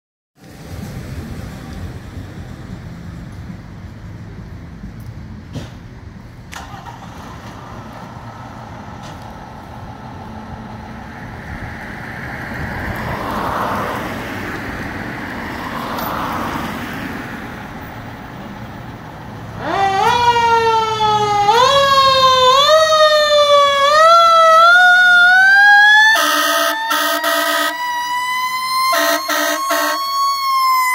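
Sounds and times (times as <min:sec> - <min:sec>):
siren rising and falling: 0:19.5 - 0:30.9.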